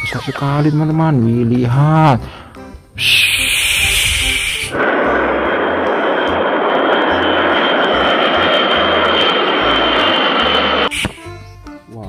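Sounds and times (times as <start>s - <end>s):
jet engine roar with whine: 3.2s - 11.2s.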